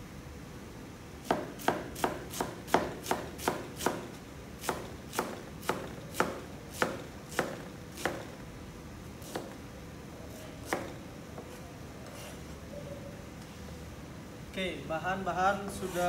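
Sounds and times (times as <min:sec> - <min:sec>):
cleaver chopping on plastic board: 0:01.3 - 0:08.3, 0:10.6 - 0:11.0.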